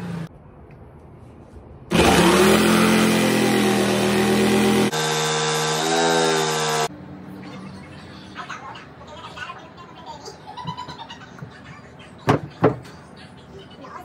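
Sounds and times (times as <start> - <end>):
jigsaw cutting wood: 1.9 - 6.9.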